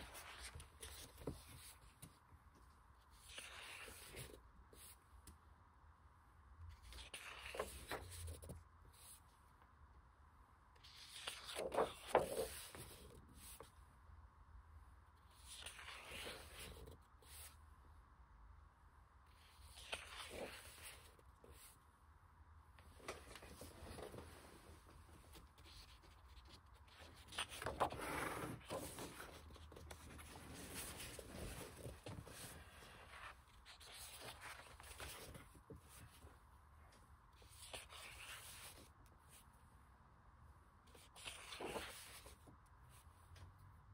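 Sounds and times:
book pages turning: 0:00.0 - 0:02.3, 0:03.0 - 0:05.0, 0:06.7 - 0:09.2, 0:10.8 - 0:13.7, 0:15.3 - 0:17.6, 0:19.4 - 0:21.8, 0:22.8 - 0:36.3, 0:37.4 - 0:39.5, 0:40.9 - 0:42.6
paper rustling: 0:00.0 - 0:02.3, 0:06.8 - 0:09.2, 0:10.8 - 0:13.7, 0:22.8 - 0:36.3, 0:40.9 - 0:42.6.

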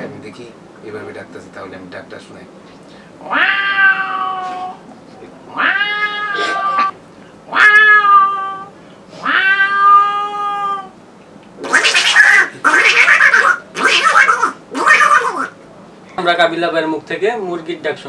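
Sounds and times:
man imitating cat yowls: 0:03.2 - 0:04.8, 0:05.5 - 0:10.9, 0:11.6 - 0:15.6.

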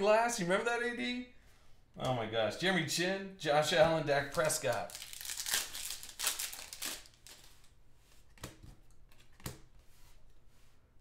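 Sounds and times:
foil wrapper tearing and crinkling: 0:04.3 - 0:07.6.

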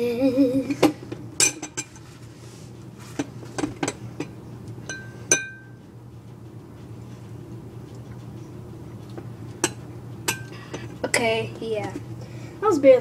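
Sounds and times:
spoon clinking against dish: 0:04.9 - 0:05.8.

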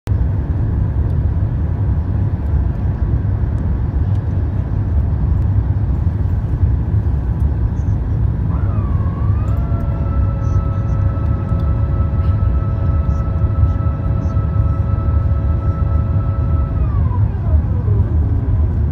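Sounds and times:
jet airliner cabin rumble: 0:00.1 - 0:18.9
steady multi-pitch tone: 0:07.8 - 0:18.9.

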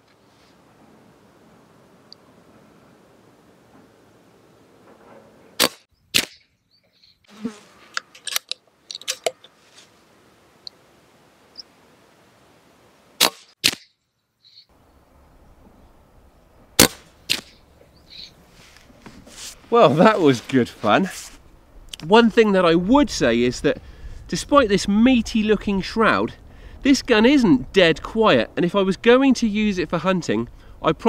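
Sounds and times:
air rifle firing cracks: 0:05.6 - 0:06.4, 0:13.2 - 0:13.9, 0:16.8 - 0:17.6.

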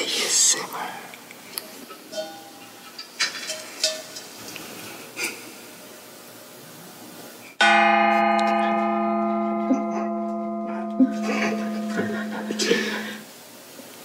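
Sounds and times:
small gong struck with mallet: 0:07.6 - 0:13.2.

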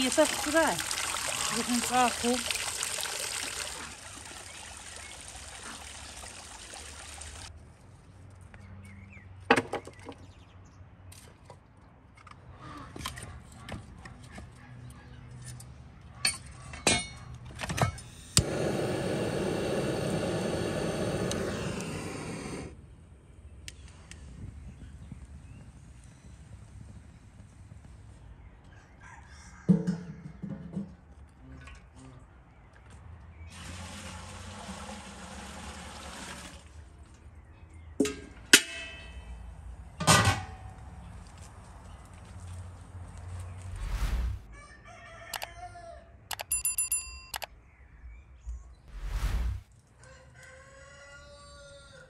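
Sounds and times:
water pouring into metal pot: 0:00.0 - 0:07.5
fire rushing hiss: 0:18.3 - 0:22.9, 0:43.7 - 0:44.5, 0:48.9 - 0:49.7
sharp click: 0:46.3 - 0:47.5.

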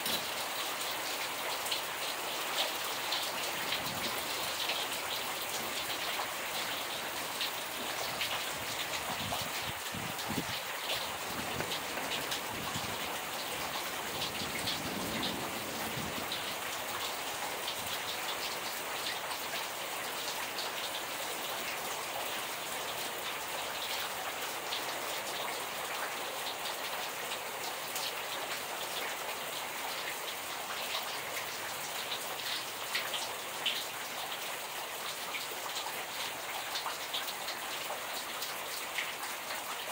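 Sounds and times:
steady rain into water: 0:00.0 - 0:39.9.

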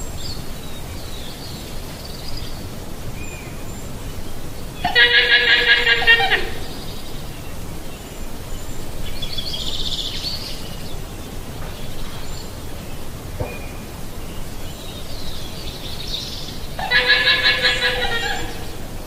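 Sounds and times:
background hiss: 0:00.0 - 0:19.0
llama calling: 0:04.8 - 0:06.9, 0:16.8 - 0:19.0.

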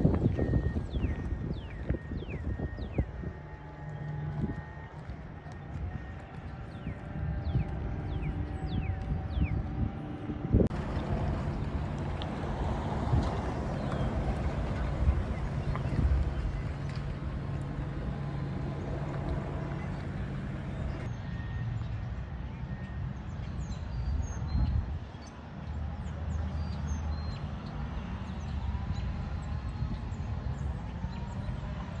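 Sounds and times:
truck engine driving past: 0:00.0 - 0:23.0
outdoor rumble: 0:00.0 - 0:23.4.

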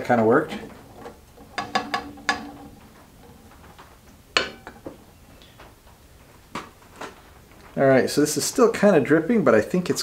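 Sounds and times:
stick knocking on tin can: 0:01.4 - 0:02.8.

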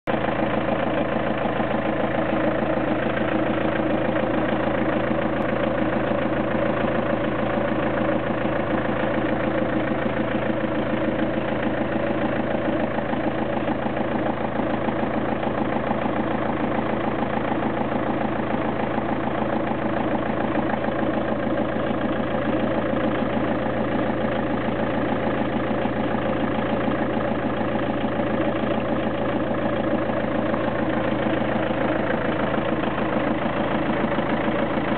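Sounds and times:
car engine idling: 0:00.0 - 0:34.9.

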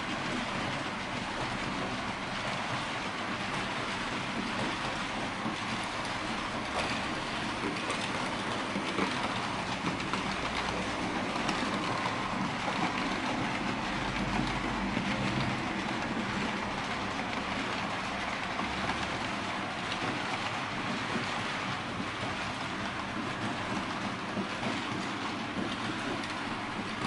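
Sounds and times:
wheels clicking over rails: 0:00.0 - 0:27.0.

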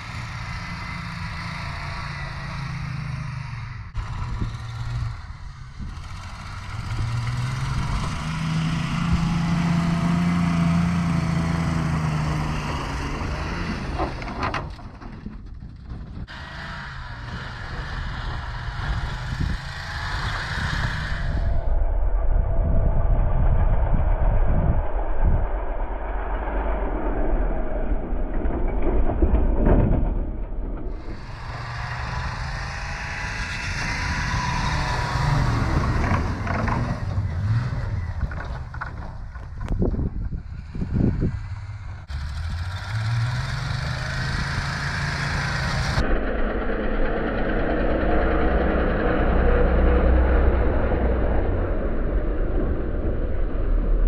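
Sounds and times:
wheels spinning in snow: 0:00.0 - 0:29.7, 0:30.9 - 0:54.0
truck engine rumbling: 0:00.0 - 0:54.0.

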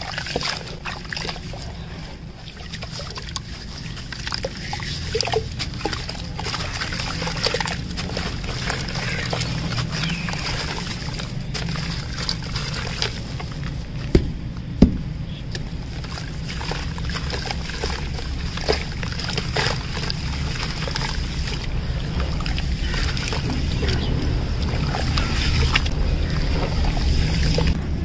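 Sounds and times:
water sloshing in metal tray: 0:00.0 - 0:14.2, 0:15.5 - 0:27.8
wet cement crumbling and squishing: 0:00.0 - 0:27.8
steady low hum: 0:00.0 - 0:28.0
sharp knocks: 0:14.1 - 0:15.1.

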